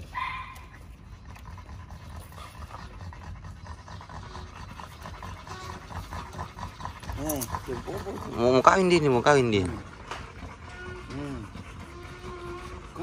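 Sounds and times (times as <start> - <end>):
dog panting: 0.0 - 13.0.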